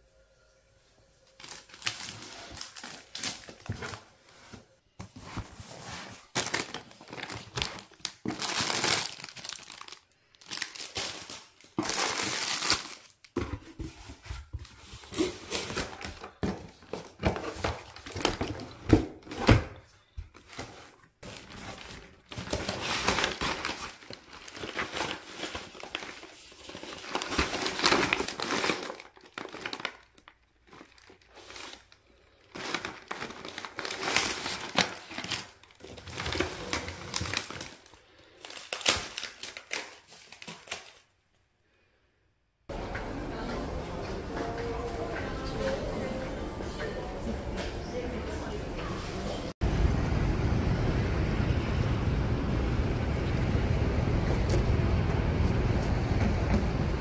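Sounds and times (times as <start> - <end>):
packaging crinkling and rustling: 1.3 - 41.2
packaging tearing: 6.2 - 13.3, 21.3 - 41.1.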